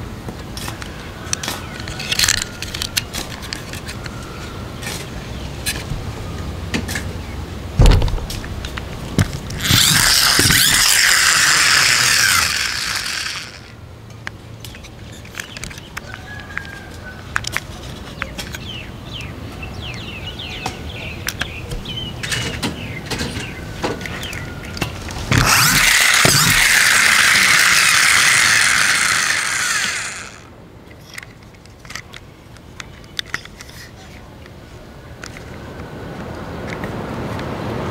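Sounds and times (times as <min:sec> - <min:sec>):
plastic toy clicks and rattles: 0:00.7 - 0:04.1, 0:08.7 - 0:16.8, 0:17.4 - 0:18.6, 0:24.2 - 0:32.2
toy gear mechanism whirring: 0:01.3 - 0:04.1, 0:09.2 - 0:13.8, 0:25.1 - 0:32.0.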